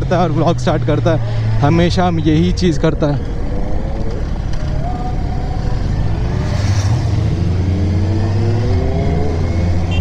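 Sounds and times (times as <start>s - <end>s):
wind and road noise: 0.0s - 10.0s
motorcycle engine accelerating: 3.2s - 10.0s.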